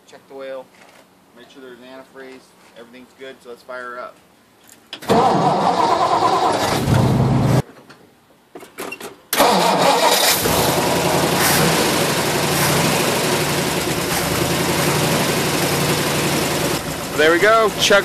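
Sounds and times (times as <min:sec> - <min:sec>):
starter motor cranking: 0:09.4 - 0:18.0
engine idling: 0:10.3 - 0:18.0.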